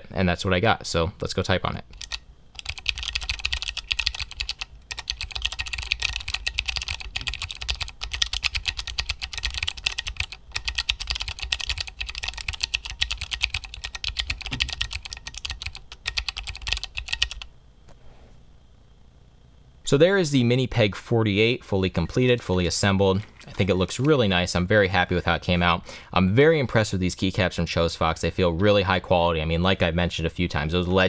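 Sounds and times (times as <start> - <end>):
fast keyboard typing: 1.9 - 17.5.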